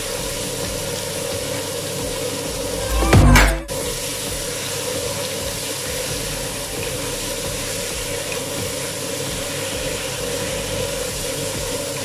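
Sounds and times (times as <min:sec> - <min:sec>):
chicken sizzling in a wok: 0:00.0 - 0:02.5, 0:04.5 - 0:12.0
low hum: 0:02.7 - 0:03.9.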